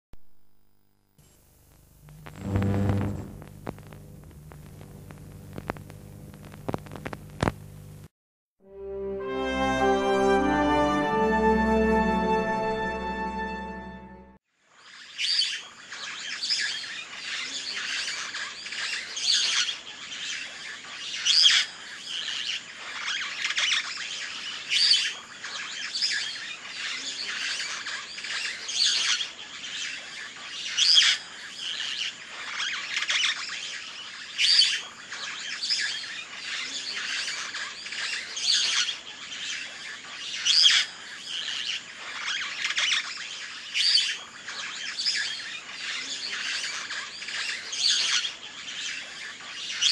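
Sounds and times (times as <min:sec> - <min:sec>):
small birds chirping and twittering: 0:14.9 - 0:49.9.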